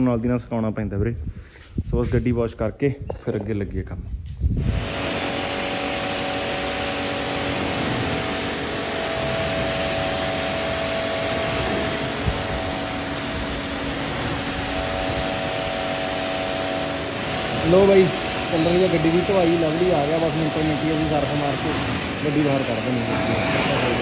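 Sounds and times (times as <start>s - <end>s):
pressure washer pump humming: 4.6s - 24.0s
water jet hissing on car: 4.7s - 24.0s.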